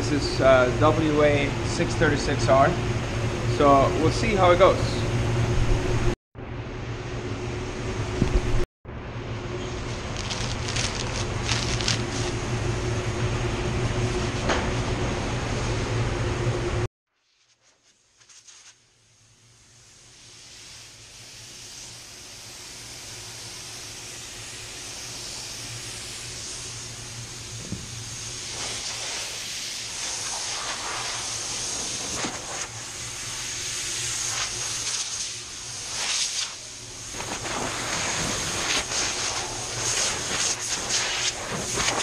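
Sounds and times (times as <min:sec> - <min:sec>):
spray gun hissing: 0:18.3 - 0:42.0.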